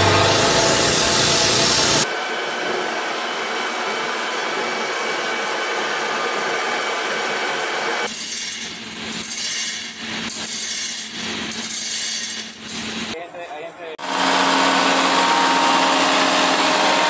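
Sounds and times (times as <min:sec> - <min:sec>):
metal lathe whirring: 0:00.0 - 0:08.1, 0:14.0 - 0:17.0
angle grinder cutting metal: 0:00.0 - 0:13.1, 0:14.0 - 0:17.0.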